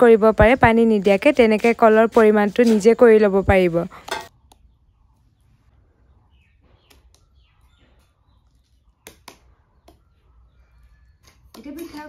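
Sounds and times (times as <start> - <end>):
faint bird chirps: 4.3 - 11.8.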